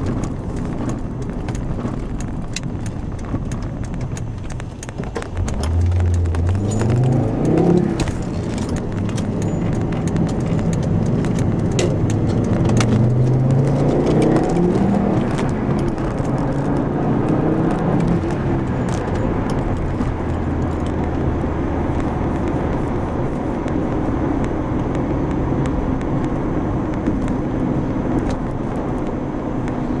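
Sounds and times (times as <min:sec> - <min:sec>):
car engine running: 0:00.0 - 0:30.0
road and tyre noise: 0:00.0 - 0:30.0.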